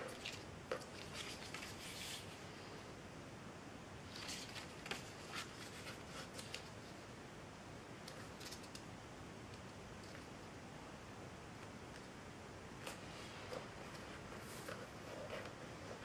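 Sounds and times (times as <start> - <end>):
paper folding crackles: 0.0 - 2.3, 4.1 - 7.0
steady low hiss: 0.0 - 16.0.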